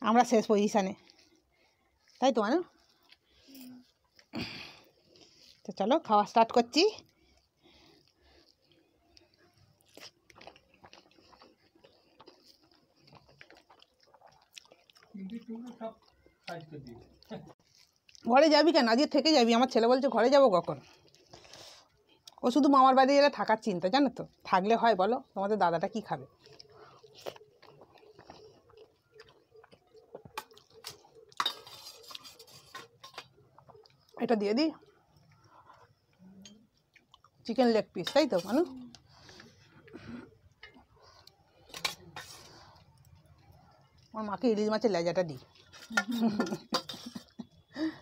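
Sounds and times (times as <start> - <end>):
wet squishes of food by hand: 7.0 - 22.7, 25.4 - 45.8.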